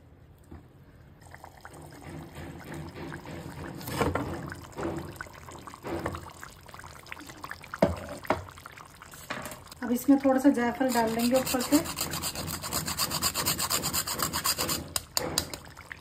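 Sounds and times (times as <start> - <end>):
wet liquid sounds: 0.3 - 12.8
knife scraping dough seal: 10.9 - 15.1.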